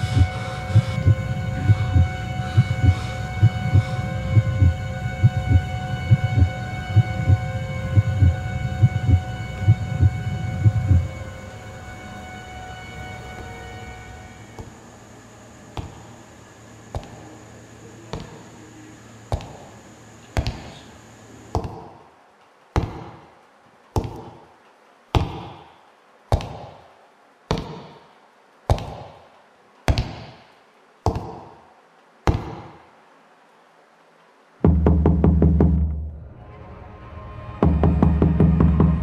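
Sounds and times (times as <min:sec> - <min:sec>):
steady hum: 0:00.0 - 0:39.0
knocking on wooden door: 0:34.7 - 0:35.9.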